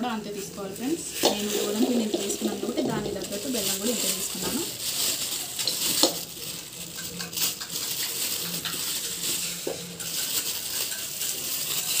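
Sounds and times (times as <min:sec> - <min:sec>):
plastic bag crinkling: 0:00.4 - 0:12.0
lumps dropping into metal pan: 0:01.2 - 0:04.8.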